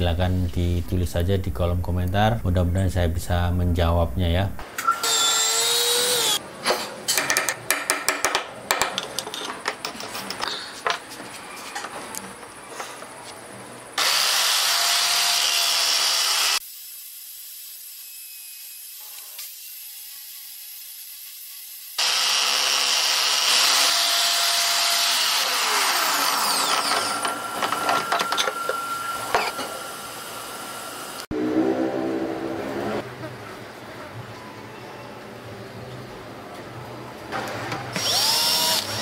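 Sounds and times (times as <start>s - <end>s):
whine gliding down in pitch: 27.3s - 33.1s.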